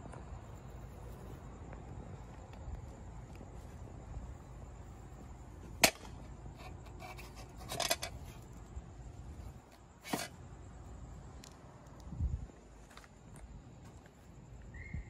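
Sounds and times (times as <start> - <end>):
hand brushing and rubbing fixture: 6.5 - 8.5, 9.4 - 10.3.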